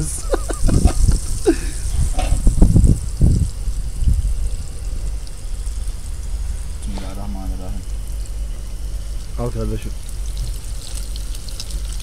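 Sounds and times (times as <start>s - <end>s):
low thumps and rumbles: 0.0s - 12.0s
sausage sizzling in a pan: 8.0s - 12.0s.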